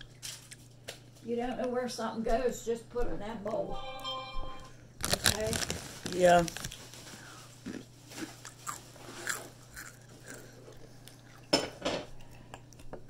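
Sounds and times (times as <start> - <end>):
crunching and chewing chips: 0.0 - 1.2, 5.0 - 11.5.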